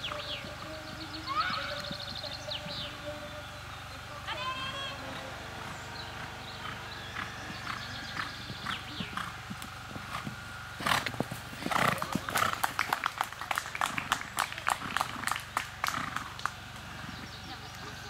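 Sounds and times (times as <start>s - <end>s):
horse hoofbeats on sand: 0.0s - 3.4s, 4.3s - 17.9s.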